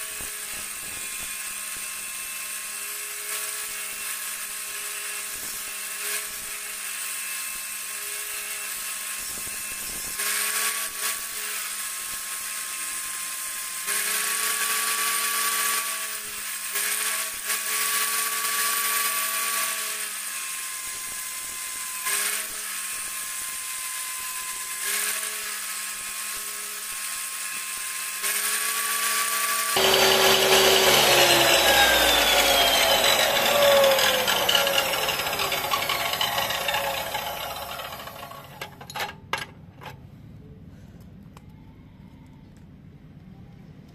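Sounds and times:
electric power tool running: 0.0s - 39.4s
harsh sound with falling whine: 29.8s - 38.4s.

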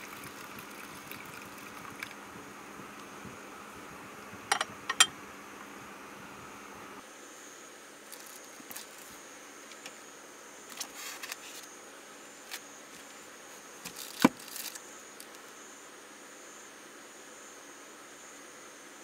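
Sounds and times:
faint steady hiss: 0.0s - 19.0s
plastic-wrapped tray rustling: 13.9s - 14.8s.

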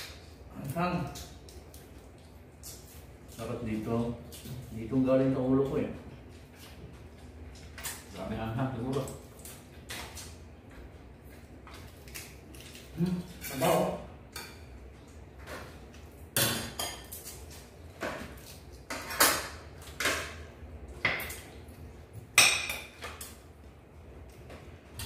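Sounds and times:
crab shells cracking: 11.8s - 13.9s.

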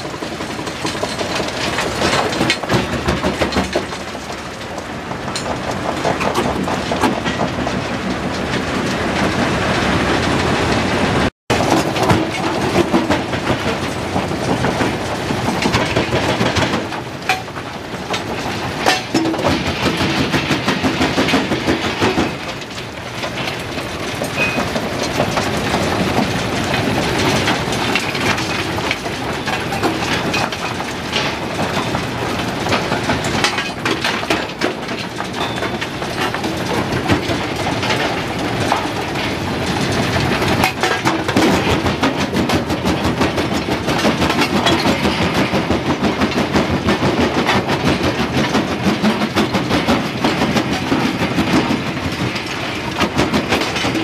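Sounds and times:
rock cracking and rattling: 0.0s - 9.4s.

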